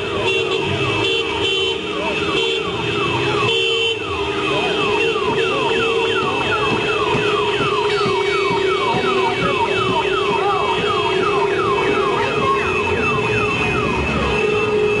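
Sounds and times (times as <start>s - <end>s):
electronic siren whooping: 2.7s - 15.0s.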